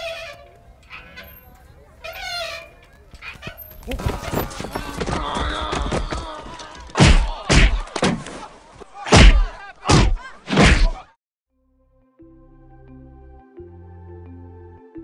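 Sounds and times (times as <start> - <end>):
heavy thuds: 9.1 - 11.0.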